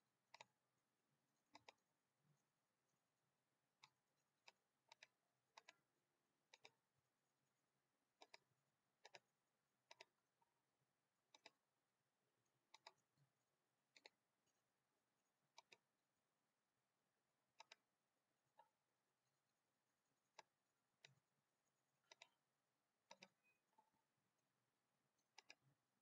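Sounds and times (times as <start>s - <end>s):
faint mouse button clicks: 1.5s - 1.8s, 3.8s - 5.8s, 6.5s - 6.8s, 8.2s - 9.3s, 9.9s - 10.2s, 11.3s - 11.6s, 12.7s - 13.0s, 13.9s - 14.2s, 15.5s - 15.8s, 17.6s - 17.8s, 22.0s - 22.4s, 23.0s - 24.0s, 25.2s - 25.8s.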